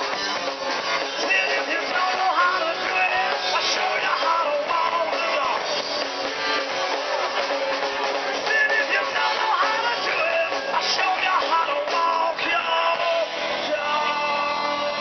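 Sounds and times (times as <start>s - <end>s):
drum kit: 0.0s - 15.0s
electric guitar: 0.0s - 15.0s
person singing: 1.1s - 5.8s, 8.4s - 15.0s.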